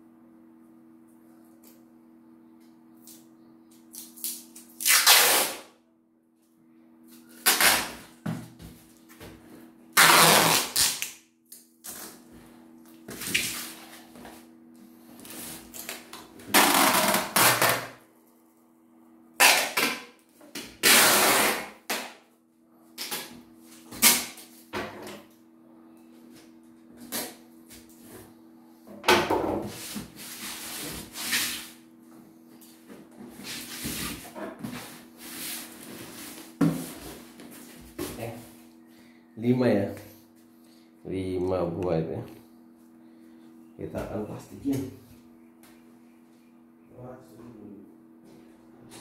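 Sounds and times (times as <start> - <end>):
packing tape pulled off roll: 3.9 - 5.7, 7.2 - 8.2, 10.0 - 12.2, 15.2 - 18.0, 19.4 - 22.2, 23.9 - 24.5
faint low hum: 31.8 - 49.0.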